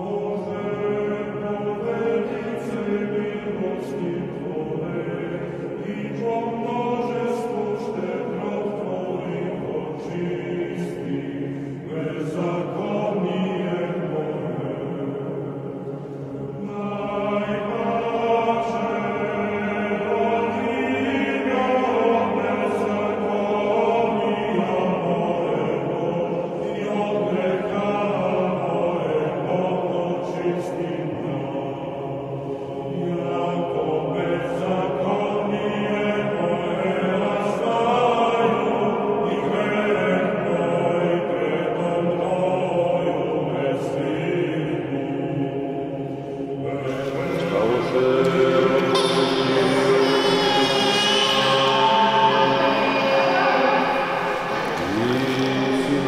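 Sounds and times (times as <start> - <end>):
choir chanting long notes: 0.0 - 56.0.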